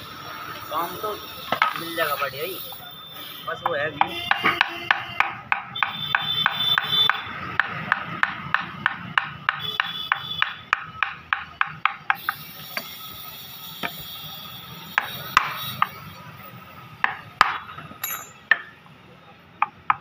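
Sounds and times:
mallet striking chisel into wood: 4.0 - 12.4, 15.0 - 15.9, 17.0 - 18.7.

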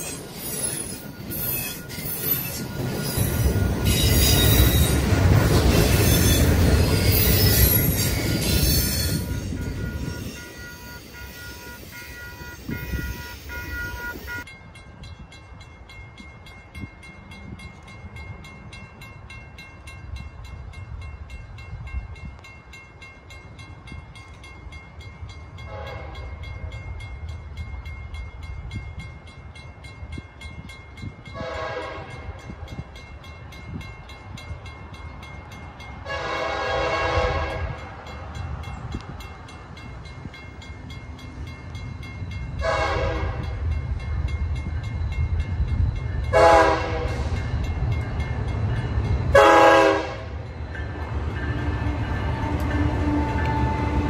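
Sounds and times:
crossing signal ringing: 0.0 - 54.0
locomotive horn blasts: 9.1 - 14.4, 25.7 - 26.4, 31.3 - 32.4, 36.0 - 37.9, 42.6 - 43.6, 46.3 - 47.3, 49.3 - 50.4.

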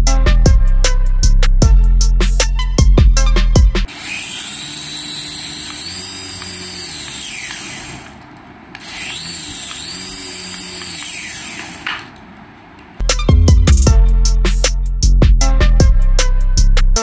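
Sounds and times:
toy helicopter motors whirring: 3.9 - 12.2.

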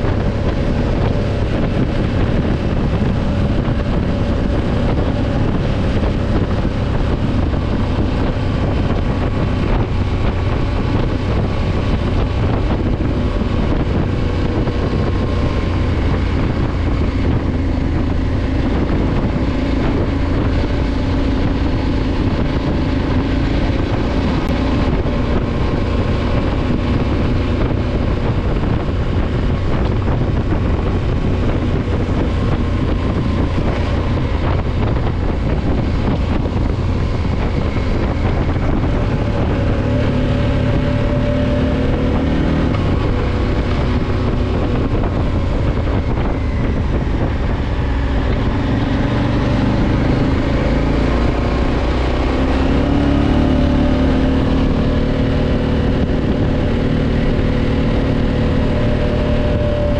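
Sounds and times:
motorcycle engine cruising: 0.0 - 59.9
wind noise on microphone: 0.0 - 59.9.

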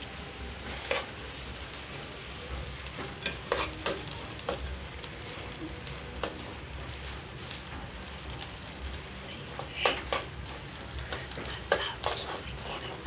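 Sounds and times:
food sizzling in a pan: 0.0 - 13.0
spoon stirring in a pan: 0.2 - 13.0
spoon clacking against pan: 3.1 - 4.7.

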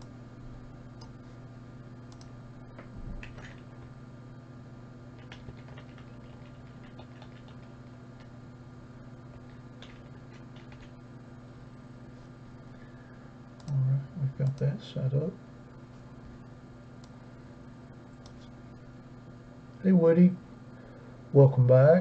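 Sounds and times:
electrical hum: 0.0 - 22.0
mouse and keyboard clicks: 3.2 - 3.8, 5.2 - 8.3, 9.4 - 10.9.

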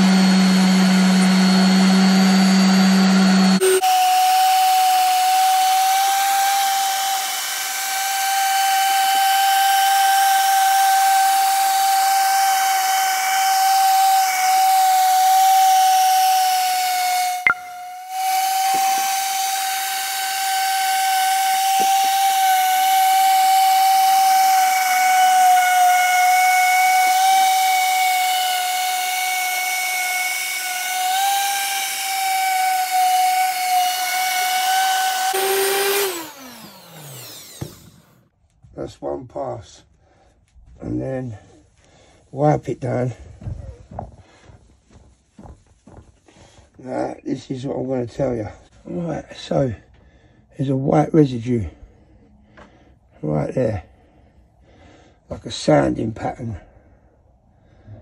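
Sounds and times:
orbital sander whining: 0.0 - 38.3.

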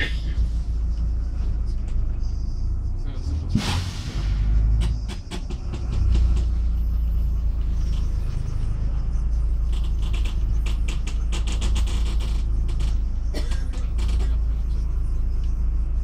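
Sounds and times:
bus engine and road rumble: 0.0 - 16.0
quick clicks and rattles: 9.6 - 13.1.

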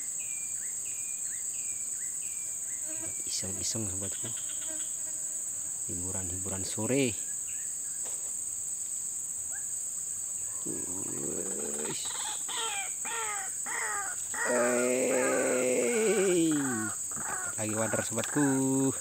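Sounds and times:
high-pitched insect drone: 0.0 - 8.3, 9.0 - 19.0
wavering drawn-out call: 10.6 - 18.8.

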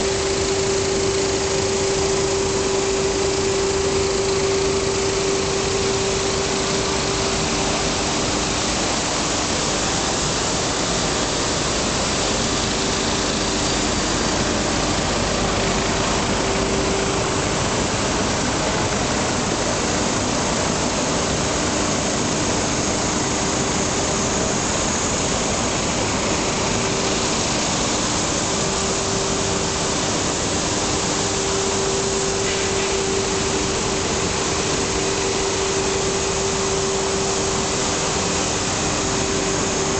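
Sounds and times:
industrial machine humming: 0.0 - 39.9.

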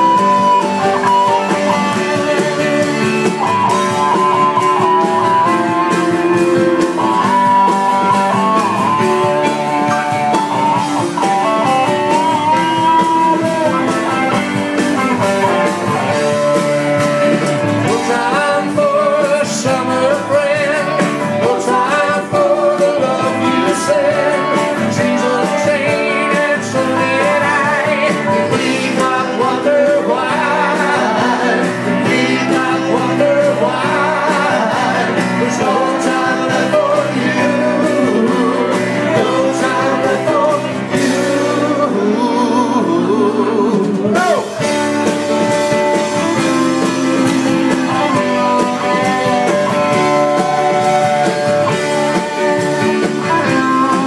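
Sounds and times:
bluesy rock band with guitar: 0.0 - 54.0.

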